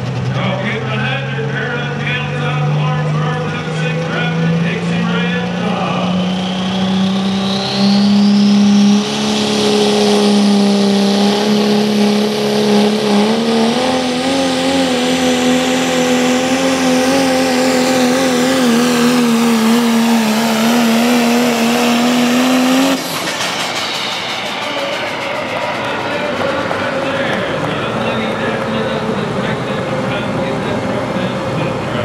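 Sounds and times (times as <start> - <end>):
diesel truck engine at full power: 0.0 - 32.0
high whistle: 6.2 - 10.5.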